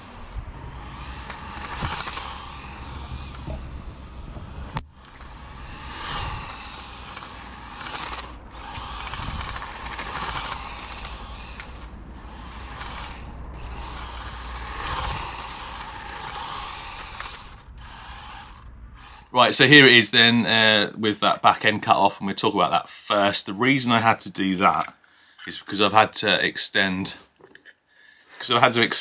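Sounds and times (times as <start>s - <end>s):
small electric motor whining: 0.0s - 19.9s.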